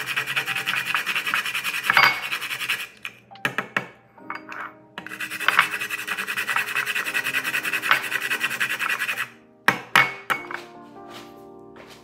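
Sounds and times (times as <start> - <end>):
nutmeg grated on metal grater: 0.0 - 3.0, 5.0 - 9.3.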